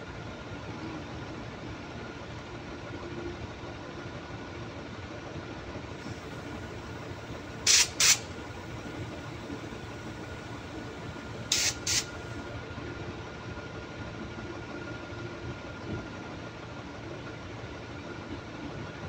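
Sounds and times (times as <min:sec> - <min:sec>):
steady mechanical hum: 0:00.0 - 0:19.0
compressed air blow gun hissing: 0:07.6 - 0:08.4, 0:11.4 - 0:12.2.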